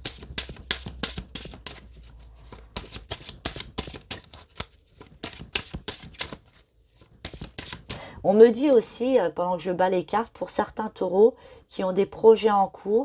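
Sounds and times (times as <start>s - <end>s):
cards being shuffled: 0.0s - 8.0s.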